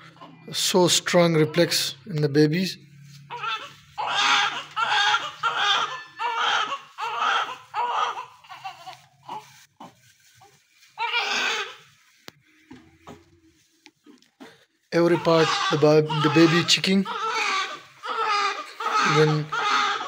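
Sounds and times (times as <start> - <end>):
newborn baby crying: 3.3 - 10.0, 11.0 - 12.0, 13.0 - 20.0.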